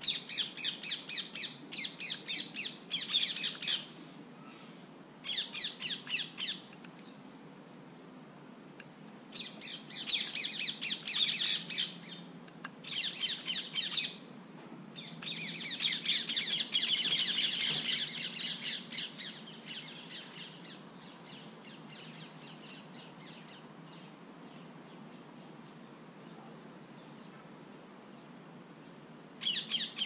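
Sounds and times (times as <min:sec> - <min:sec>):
bird calls chattering: 0:00.0 - 0:03.9, 0:04.5 - 0:06.7, 0:09.4 - 0:12.2, 0:15.0 - 0:24.1, 0:29.4 - 0:30.0.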